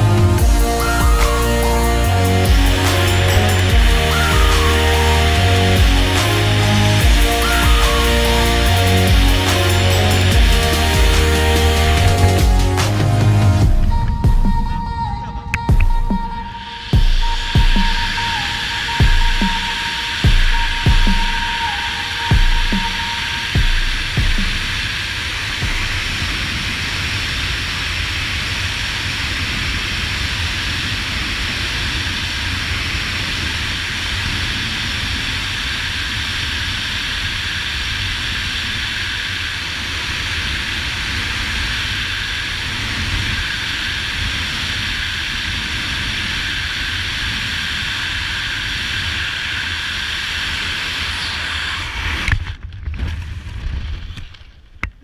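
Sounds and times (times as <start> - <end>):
wind rush over microphone: 16.5 - 54.6.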